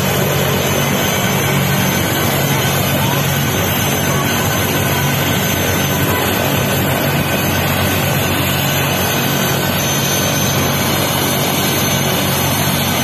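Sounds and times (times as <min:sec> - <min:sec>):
helicopter turbine and rotor running: 0:00.0 - 0:13.0.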